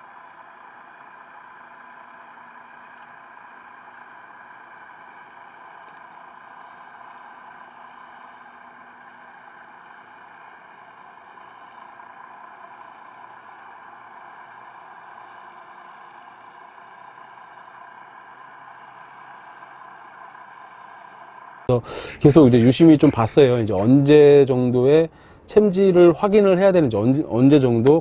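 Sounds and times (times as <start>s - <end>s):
underwater hum and hiss: 0.0s - 23.8s.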